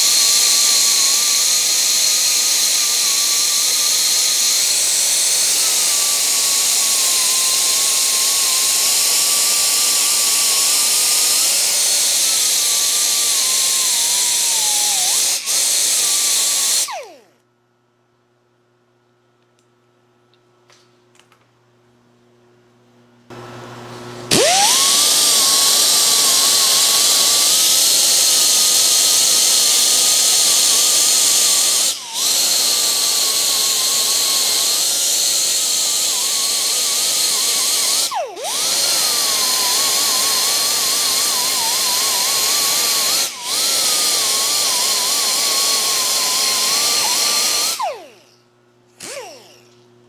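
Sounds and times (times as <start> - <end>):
power grinder grinding metal: 0.0 - 17.3, 24.3 - 48.4, 49.0 - 49.8.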